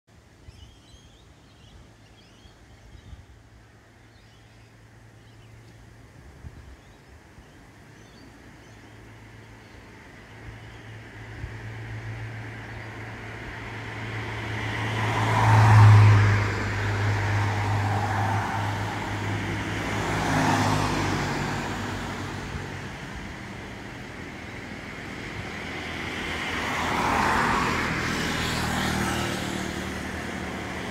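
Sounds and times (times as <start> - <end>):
cars driving past: 7.7 - 30.9.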